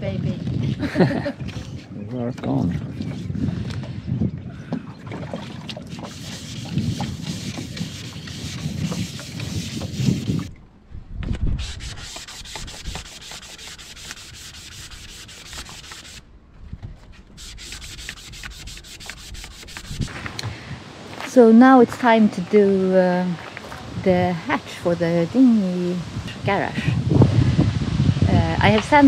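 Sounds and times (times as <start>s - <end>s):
sandpaper rubbing by hand: 5.9s - 10.5s, 11.5s - 16.2s, 17.4s - 20.3s.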